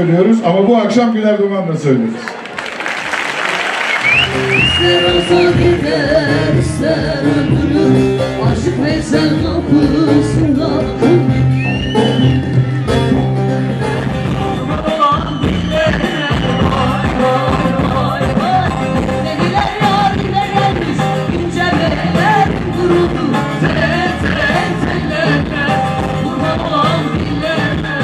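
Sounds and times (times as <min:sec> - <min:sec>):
folk song with band: 0:03.9 - 0:28.0
crowd singing along: 0:04.0 - 0:28.0.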